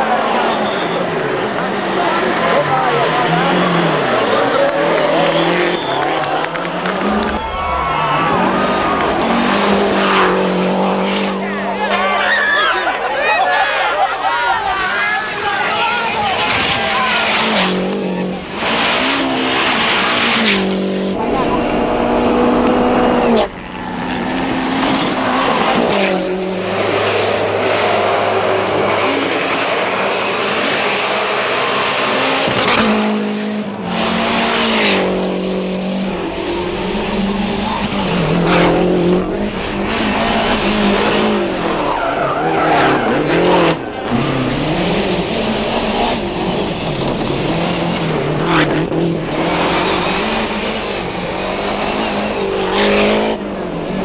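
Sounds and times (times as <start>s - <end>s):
rally car engines revving hard: 0.0s - 12.2s, 14.8s - 54.0s
tyres skidding on gravel: 33.9s - 54.0s.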